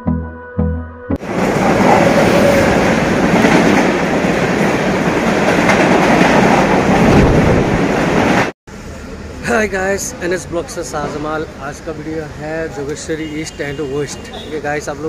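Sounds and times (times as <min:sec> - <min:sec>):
train wheels on tracks: 0:01.2 - 0:08.5.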